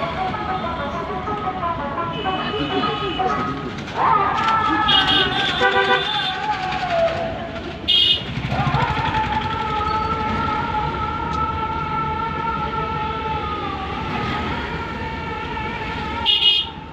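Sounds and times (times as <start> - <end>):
road and engine noise: 0.0 - 16.9
vehicle horn toot: 2.1 - 3.6, 4.8 - 6.4, 7.9 - 8.4, 16.2 - 16.8.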